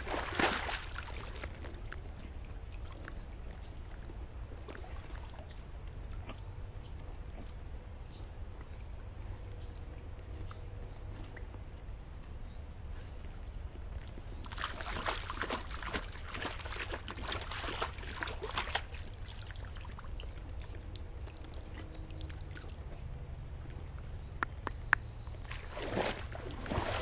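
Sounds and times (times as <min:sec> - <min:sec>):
hooves splashing through water: 0:00.0 - 0:07.8, 0:13.2 - 0:24.3, 0:25.2 - 0:27.0.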